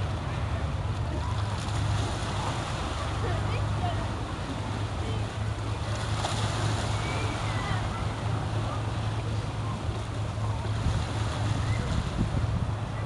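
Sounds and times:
boat engines droning: 0:00.0 - 0:13.0
water noise: 0:00.0 - 0:13.0
wind: 0:00.0 - 0:13.0.

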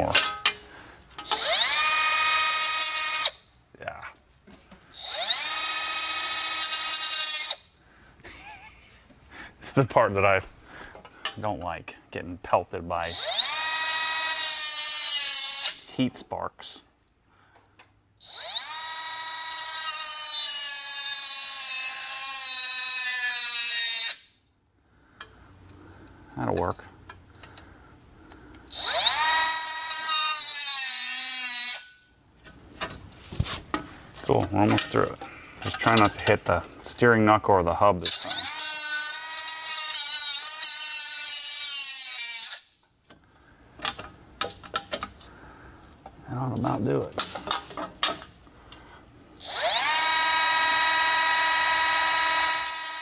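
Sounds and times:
cutoff wheel cutting metal: 0:01.2 - 0:03.4, 0:04.9 - 0:07.6, 0:13.1 - 0:15.9, 0:18.2 - 0:24.3, 0:28.7 - 0:32.0, 0:38.0 - 0:42.7, 0:49.4 - 0:53.0.

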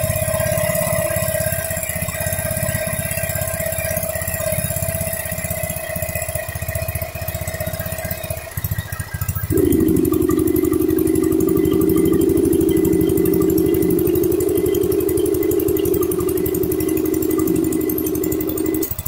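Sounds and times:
air compressor engine running: 0:09.5 - 0:19.0.

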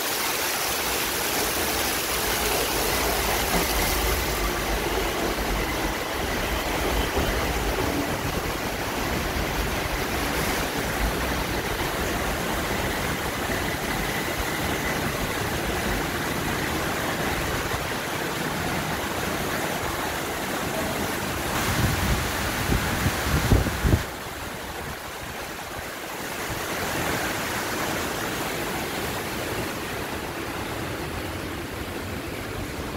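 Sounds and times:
heavy rain pouring: 0:00.0 - 0:32.9
electric train rolling to a stop: 0:01.5 - 0:21.0.

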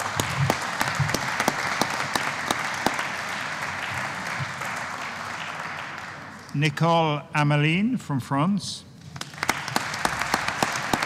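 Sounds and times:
audience applauding: 0:00.0 - 0:06.6, 0:09.1 - 0:11.0.

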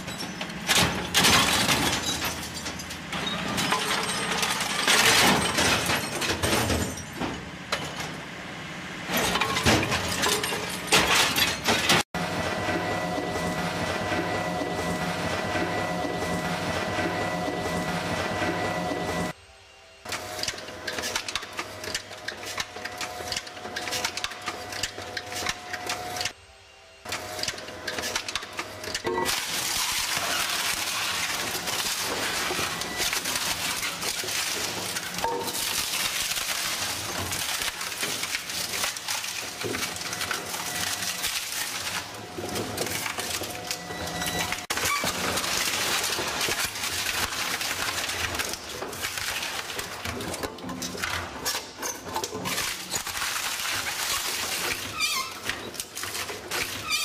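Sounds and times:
shredder cracking and crunching: 0:00.0 - 0:07.2, 0:27.2 - 0:57.0.

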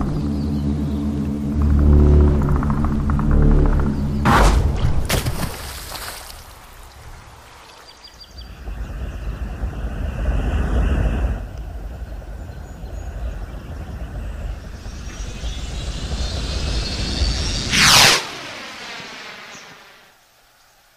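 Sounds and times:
rocket engine roar with whistle: 0:08.5 - 0:20.0.

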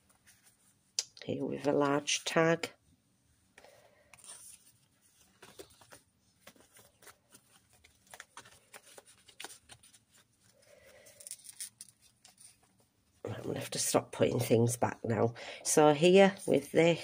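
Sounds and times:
paper cards rustling: 0:04.0 - 0:12.8.

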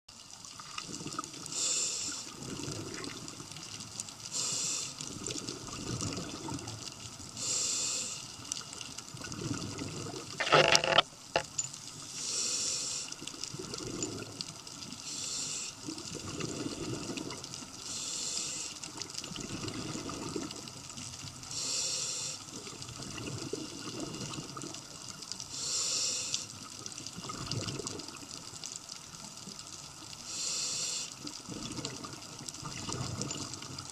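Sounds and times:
exhaled bubbles gurgling: 0:00.6 - 0:04.5, 0:05.1 - 0:07.2, 0:08.7 - 0:10.8, 0:13.3 - 0:14.9, 0:15.8 - 0:17.9, 0:18.9 - 0:21.1, 0:22.5 - 0:25.2, 0:26.6 - 0:28.5, 0:31.2 - 0:33.9
regulator inhalation hiss: 0:01.5 - 0:02.3, 0:04.3 - 0:05.0, 0:07.4 - 0:08.4, 0:12.1 - 0:13.2, 0:15.0 - 0:15.8, 0:17.8 - 0:18.8, 0:21.5 - 0:22.5, 0:25.5 - 0:26.6, 0:30.2 - 0:31.2.

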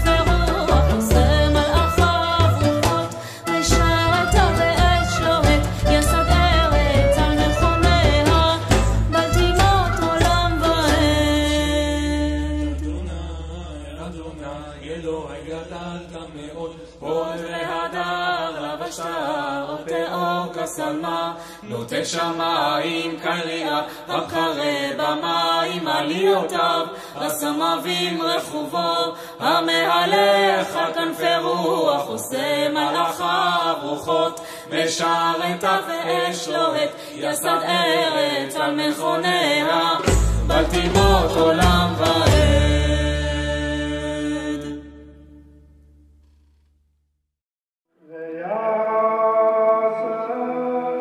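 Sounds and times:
slow chant-like song: 0:11.5 - 0:45.1, 0:47.9 - 0:51.0.

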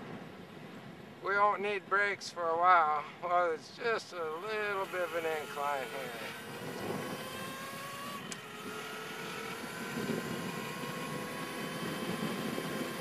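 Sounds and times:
wind: 0:00.0 - 0:13.0
electric bicycle motor whining: 0:04.3 - 0:13.0.

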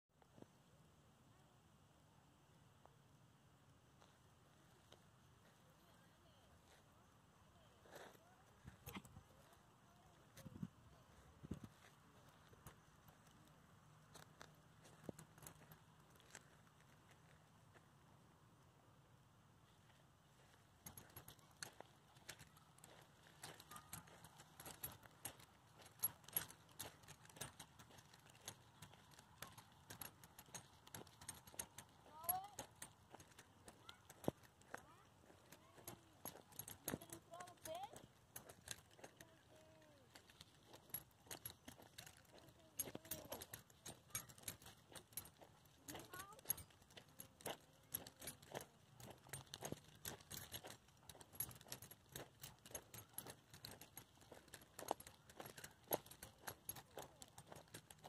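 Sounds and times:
leash hardware clinking: 0:11.1 - 0:17.2, 0:20.4 - 0:58.0
footsteps on gravel: 0:20.9 - 0:58.0.

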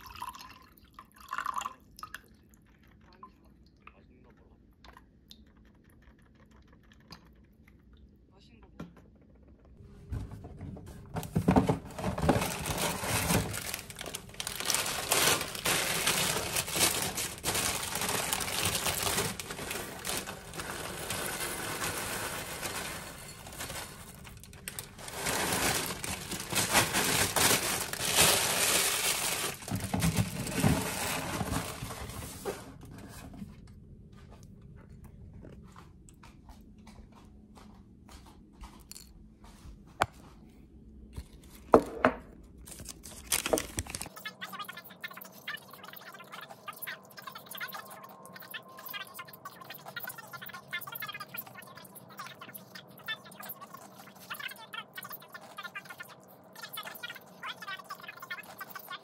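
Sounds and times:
crinkling crunching rustle: 0:11.2 - 0:32.9, 0:42.6 - 0:44.2.

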